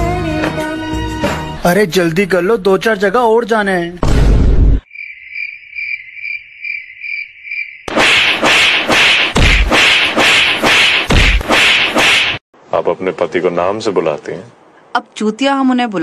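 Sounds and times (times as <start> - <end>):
cricket chirping: 4.8 - 7.9
loud slaps and whacks: 7.9 - 12.4.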